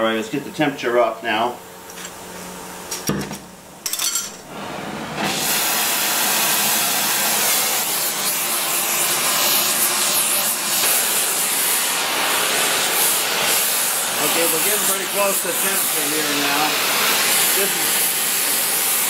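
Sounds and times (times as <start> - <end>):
gas torch hissing: 5.2 - 19.0.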